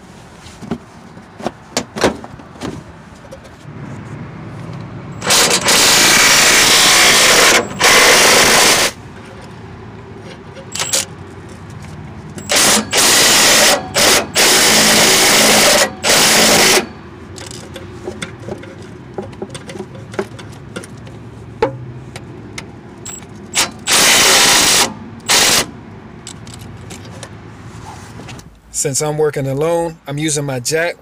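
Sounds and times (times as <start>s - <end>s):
impact wrench hammering bolts: 5.2s - 9.0s, 12.4s - 21.0s, 23.1s - 25.7s.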